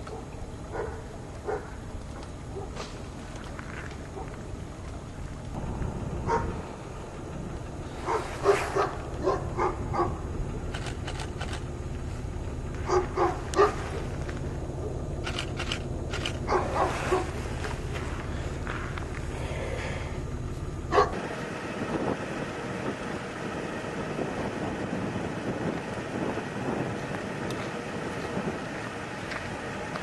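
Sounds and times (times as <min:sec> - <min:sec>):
dog barking: 0:00.0 - 0:01.8, 0:02.5 - 0:02.8, 0:04.1 - 0:04.4, 0:06.2 - 0:06.6, 0:08.0 - 0:10.2, 0:12.8 - 0:14.2, 0:16.4 - 0:17.4, 0:20.9 - 0:21.2.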